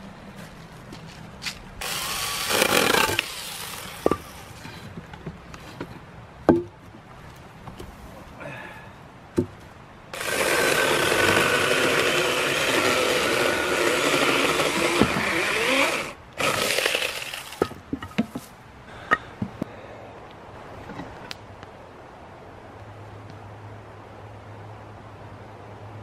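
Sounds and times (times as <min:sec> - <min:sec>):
hand saw sawing wood: 0:01.8 - 0:04.7, 0:10.2 - 0:17.6
rough rasping: 0:01.8 - 0:05.0, 0:10.2 - 0:17.7
wooden knocks: 0:06.5 - 0:06.7, 0:09.4 - 0:09.6.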